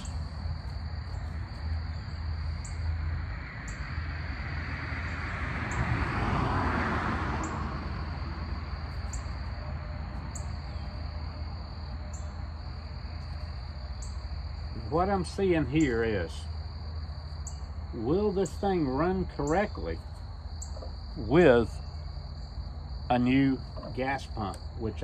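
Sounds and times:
insect chirps: 0.0s - 25.0s
insects droning: 0.0s - 25.0s.

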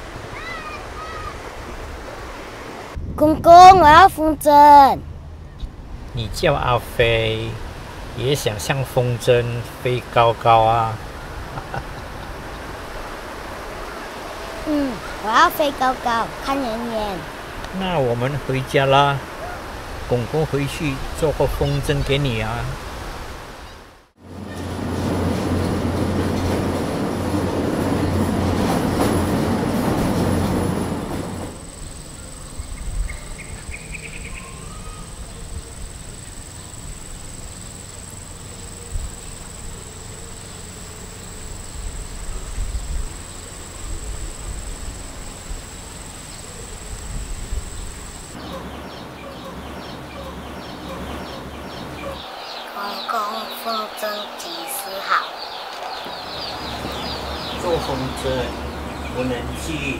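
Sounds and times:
high insect drone: 30.3s - 48.4s
bird chirps: 31.6s - 59.7s.

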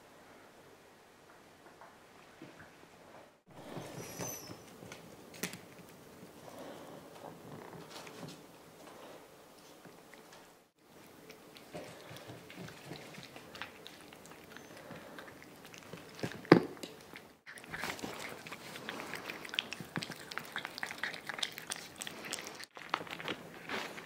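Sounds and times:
puppy chewing food: 9.5s - 24.0s.

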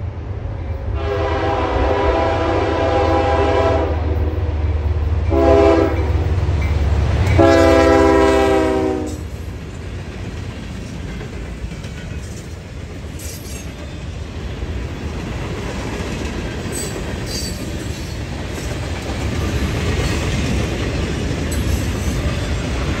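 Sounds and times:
locomotive air horn blasts: 1.0s - 4.4s, 5.3s - 6.1s, 7.4s - 9.2s
wheels clicking over rail joints: 9.1s - 23.0s.

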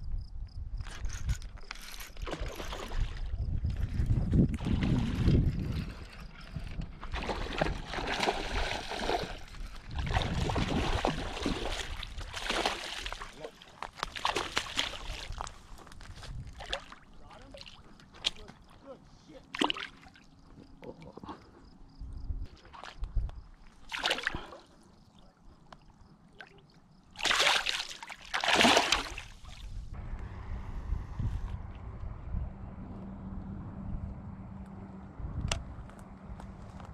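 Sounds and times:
water sloshing and trickling: 0.9s - 21.6s, 22.5s - 29.9s
kayak paddle splashing: 7.0s - 15.5s, 23.7s - 25.7s, 26.4s - 29.7s.

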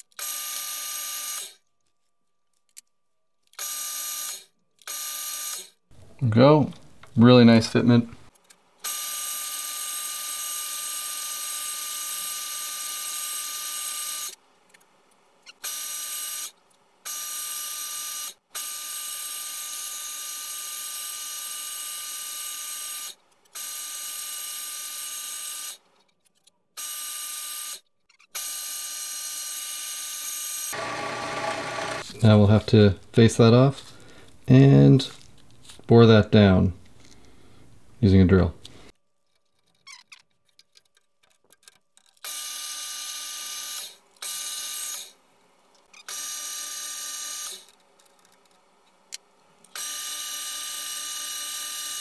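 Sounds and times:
metal lathe whine: 30.8s - 32.1s.

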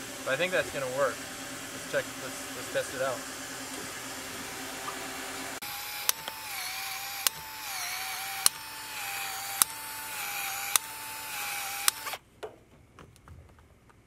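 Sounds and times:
power tool motor whine: 0.0s - 12.2s
sharp tool clicks: 6.0s - 12.2s.

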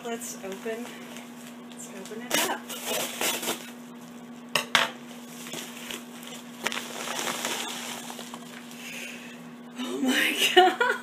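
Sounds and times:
plastic packaging crinkling: 5.2s - 8.9s.

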